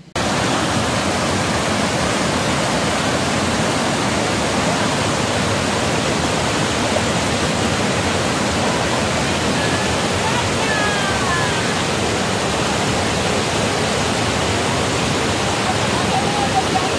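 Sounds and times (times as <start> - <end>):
stream rushing over rocks: 0.0 - 16.9.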